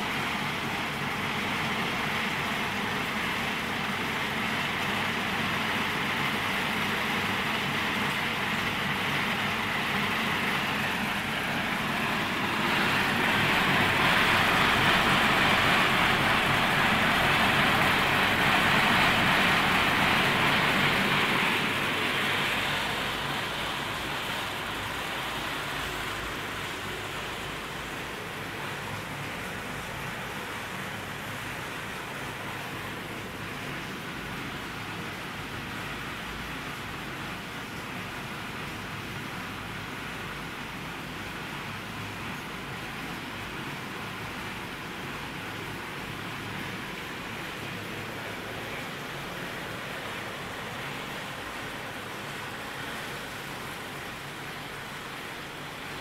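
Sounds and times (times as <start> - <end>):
machinery humming and hissing: 0.1 - 34.4.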